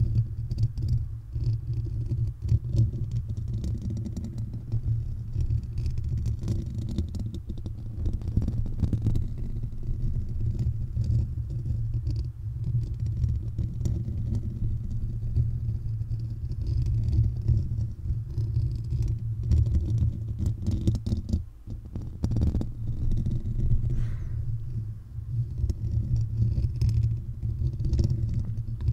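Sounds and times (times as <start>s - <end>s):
fingers scratching microphone grille: 0.0s - 28.9s.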